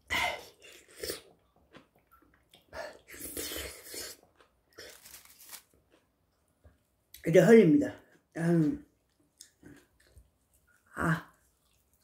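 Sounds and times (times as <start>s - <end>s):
noodles slurped and chewed: 0.4s - 6.1s, 9.0s - 12.0s.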